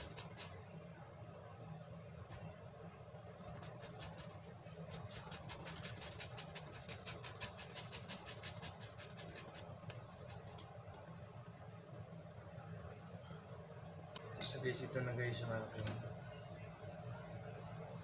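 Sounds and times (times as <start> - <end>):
steady low hum: 0.0 - 18.0
papaya rasping on metal grater: 4.9 - 9.6.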